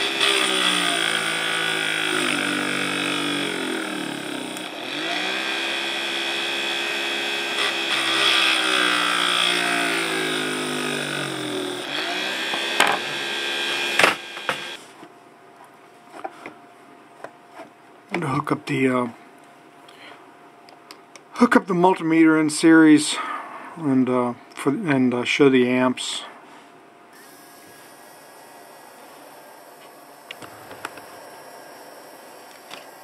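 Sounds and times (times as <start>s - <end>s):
small fan motor humming: 0.0s - 14.8s, 27.1s - 33.0s
motor switching off click: 30.2s - 31.1s.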